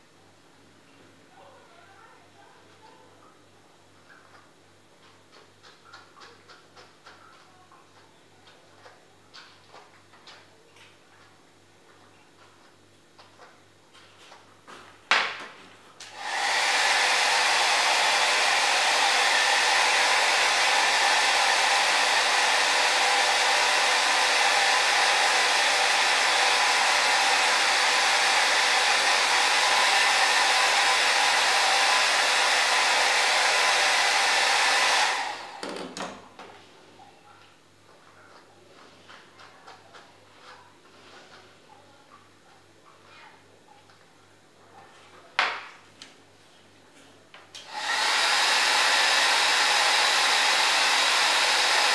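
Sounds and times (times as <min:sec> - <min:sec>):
hair dryer blowing: 0:16.0 - 0:36.0, 0:47.6 - 0:51.9.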